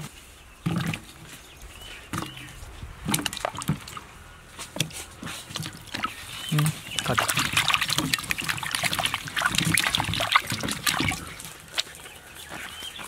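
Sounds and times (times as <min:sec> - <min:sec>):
vegetables splashing into water: 0:02.1 - 0:12.0.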